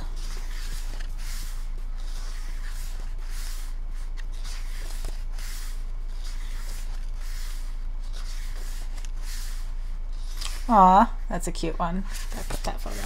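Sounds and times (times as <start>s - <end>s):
pages flipping: 0.0s - 10.7s, 12.1s - 13.0s
steady low hum: 0.0s - 13.0s.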